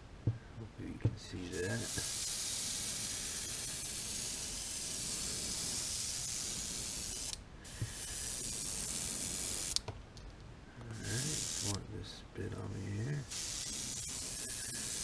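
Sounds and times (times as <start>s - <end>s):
airbrush spraying: 1.5s - 9.8s, 11.0s - 11.8s, 12.7s - 15.0s.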